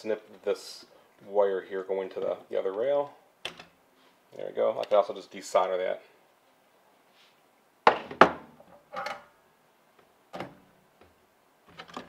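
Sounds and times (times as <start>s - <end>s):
tools knocking on wooden workbench: 7.9s - 8.5s.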